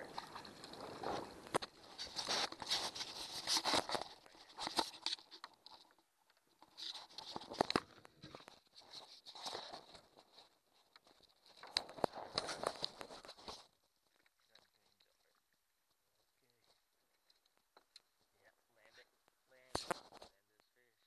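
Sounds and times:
handling clicks and rustling: 0.0 - 15.3.

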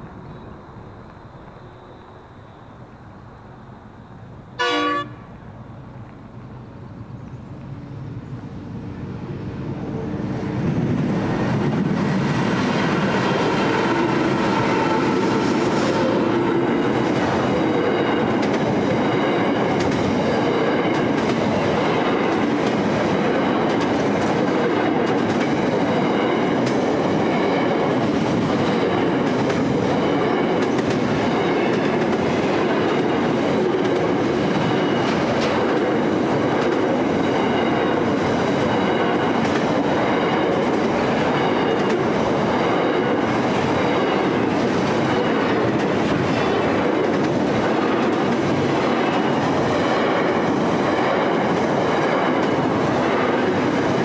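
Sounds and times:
locomotive rumble: 4.2 - 54.0
train horn blast: 4.6 - 5.3, 13.4 - 16.7.

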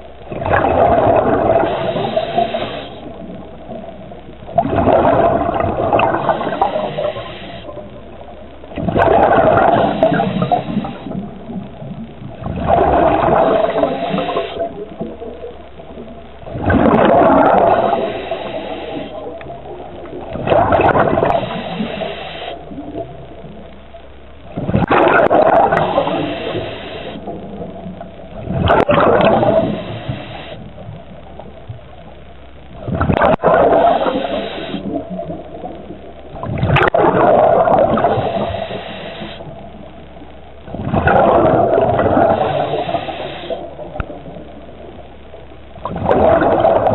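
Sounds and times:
gurgling exhaled bubbles: 0.0 - 23.6, 24.4 - 32.0, 32.7 - 45.1, 45.8 - 46.9
diver breathing through regulator: 1.5 - 3.2, 6.0 - 7.8, 9.5 - 11.2, 13.4 - 14.8, 17.6 - 19.3, 21.2 - 22.7, 25.6 - 27.3, 29.4 - 30.7, 33.7 - 35.0, 38.0 - 39.5, 42.1 - 43.7.

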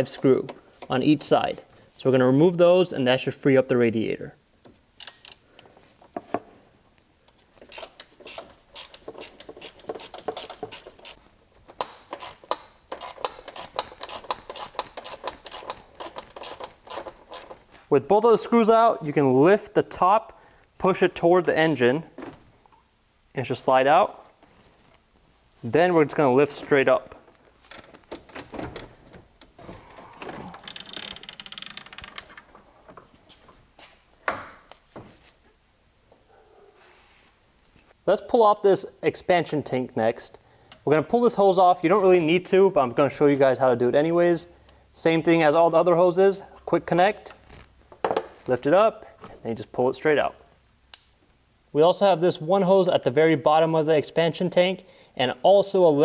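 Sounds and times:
hand tool clicking and scraping screws: 7.6 - 11.2, 11.8 - 17.6.

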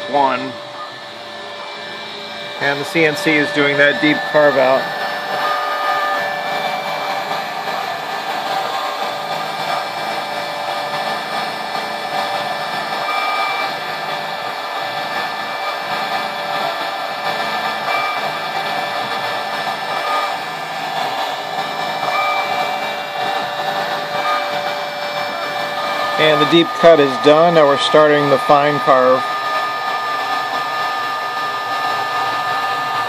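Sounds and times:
router motor running: 0.0 - 33.0
short higher tones: 2.6 - 7.1, 25.3 - 29.7.

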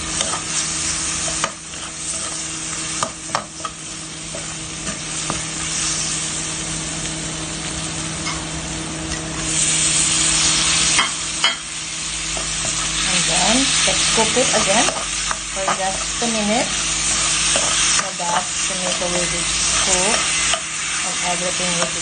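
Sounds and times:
food sizzling in oil: 0.0 - 22.0
steady low hum: 0.0 - 22.0
spatula scraping pan: 1.2 - 5.9, 13.8 - 22.0.

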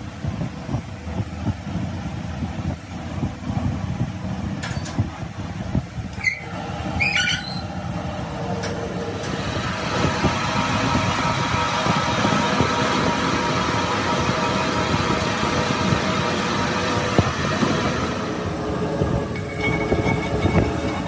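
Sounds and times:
higher machine hum: 0.0 - 21.0
low machine drone: 0.0 - 21.0.

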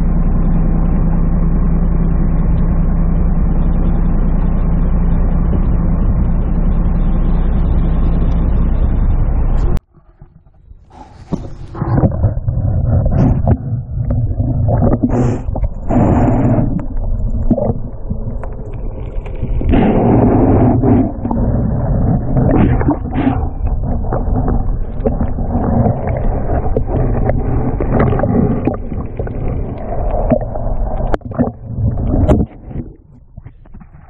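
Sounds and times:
underwater churning and knocking: 9.8 - 34.0.

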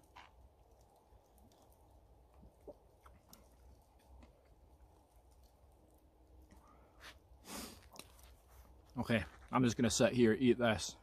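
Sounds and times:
man chewing: 0.0 - 8.8.

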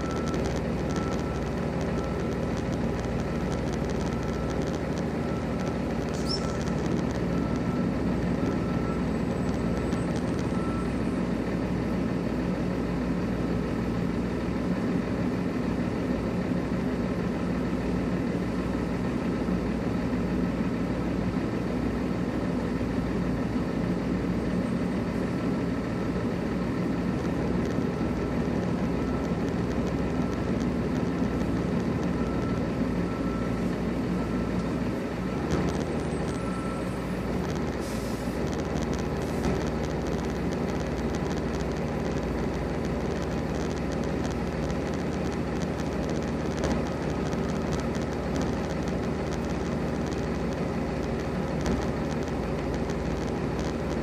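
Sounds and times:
backup alarm beeping: 0.0 - 11.0
diesel truck engine droning: 0.0 - 54.0.

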